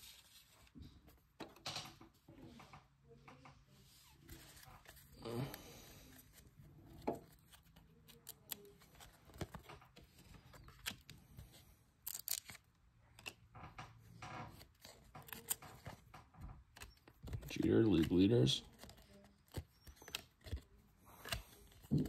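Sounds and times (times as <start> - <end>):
cards being flipped through: 3.9 - 13.5, 14.5 - 16.1, 16.7 - 22.0.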